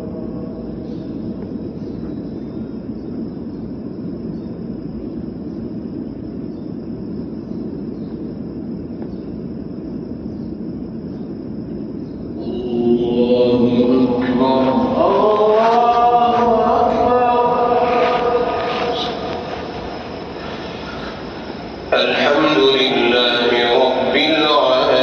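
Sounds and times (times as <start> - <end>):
low rumbling crowd room noise: 12.3 - 25.0.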